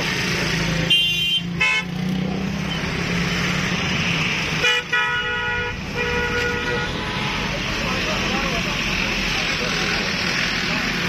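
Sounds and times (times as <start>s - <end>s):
vehicle horns honking: 0.8s - 2.2s, 4.6s - 7.6s.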